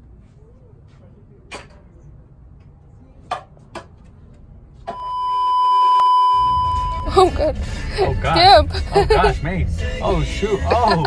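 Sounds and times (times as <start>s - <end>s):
steady electronic beep: 4.9s - 7.2s.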